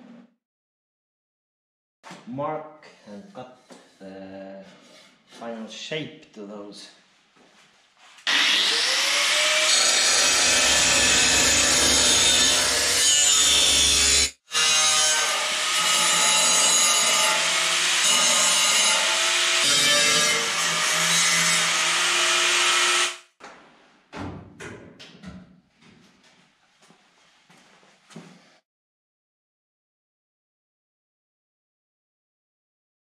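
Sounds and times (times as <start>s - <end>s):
angle grinder cutting steel: 8.2s - 23.2s.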